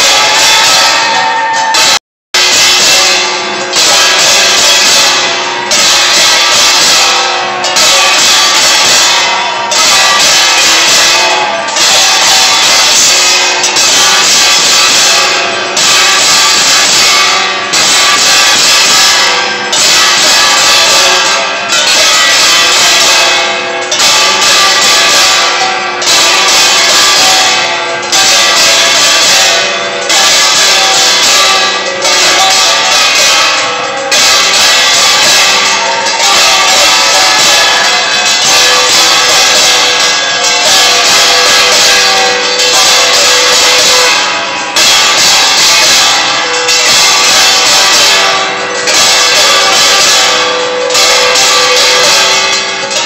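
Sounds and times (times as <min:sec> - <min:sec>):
temple bells ringing: 0:00.0 - 0:53.0.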